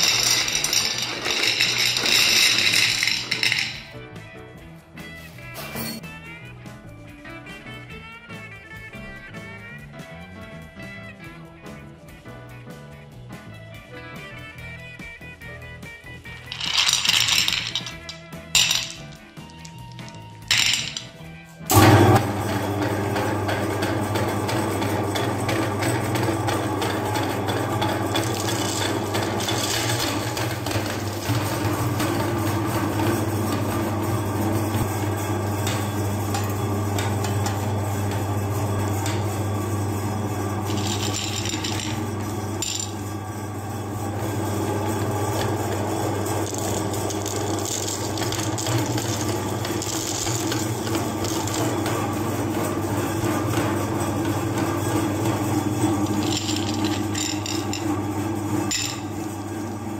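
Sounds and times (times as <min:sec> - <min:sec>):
candies crunching in grinder: 0:00.0 - 0:03.9, 0:16.4 - 0:59.5
meat grinder motor hum: 0:00.0 - 0:03.9, 0:21.6 - 0:59.9.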